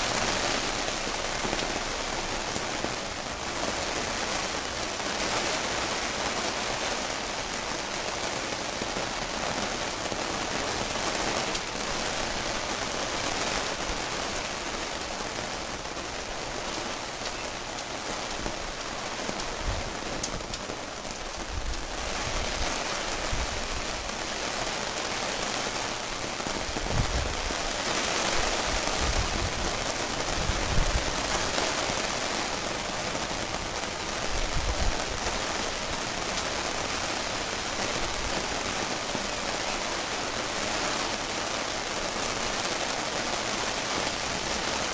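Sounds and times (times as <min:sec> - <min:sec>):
heavy rain falling: 0:00.0 - 0:44.9.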